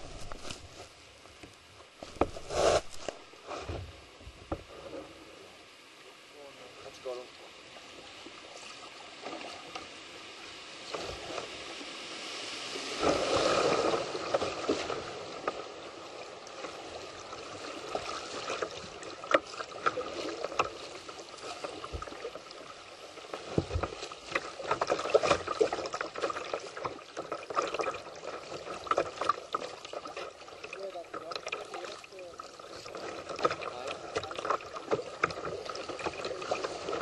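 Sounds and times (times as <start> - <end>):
rushing river water splashing: 0.0 - 1.1, 6.2 - 37.0.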